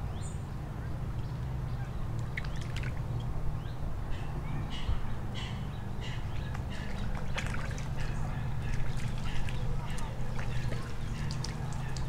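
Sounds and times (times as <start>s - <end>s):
birds making harsh calls: 4.1s - 12.0s.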